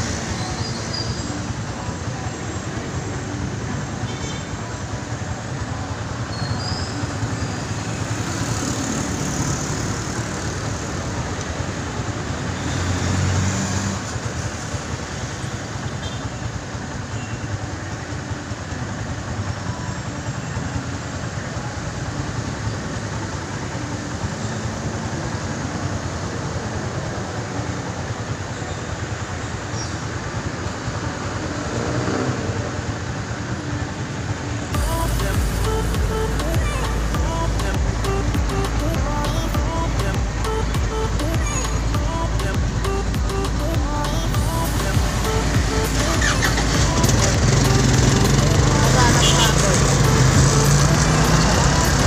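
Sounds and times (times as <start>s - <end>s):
road traffic passing: 0.0s - 52.0s
vehicle engine idling: 0.0s - 52.0s.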